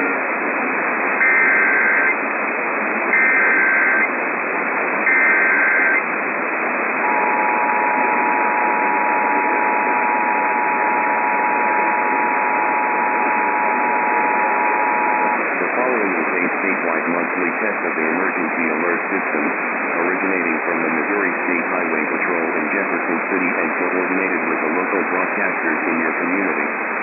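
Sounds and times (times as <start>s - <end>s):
radio static: 0.0s - 27.0s
short data bursts: 1.1s - 2.2s, 3.1s - 4.2s, 4.9s - 6.1s, 6.8s - 19.2s
two-tone attention signal: 1.2s - 2.2s, 3.2s - 4.1s, 5.1s - 6.0s, 7.0s - 15.3s.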